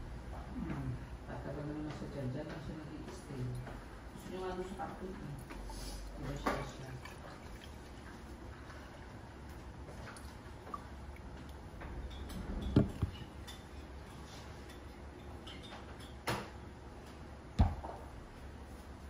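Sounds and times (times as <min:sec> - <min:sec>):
low steady hum: 0:00.0 - 0:19.0
glass and cup knocking on counter: 0:12.7 - 0:13.2.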